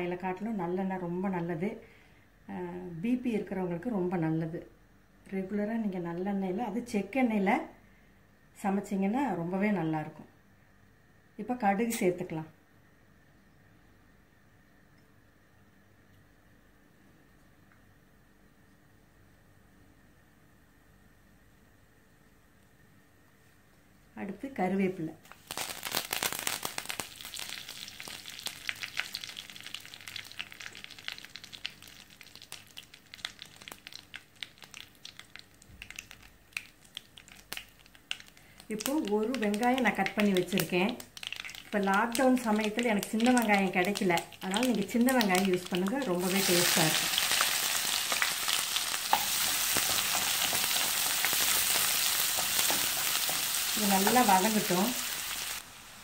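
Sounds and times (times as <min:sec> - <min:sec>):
leaves sizzling in oil: 0:25.3 - 0:56.0
oil popping and spitting: 0:25.5 - 0:53.5
wooden spoon stirring: 0:44.4 - 0:55.0.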